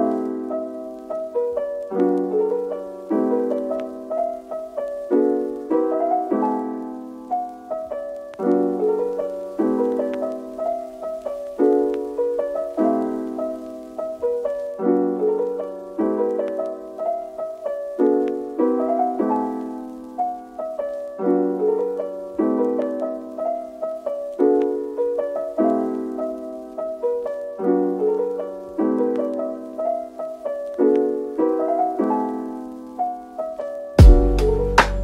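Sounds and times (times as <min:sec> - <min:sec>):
soft piano music: 0:00.0 - 0:35.0.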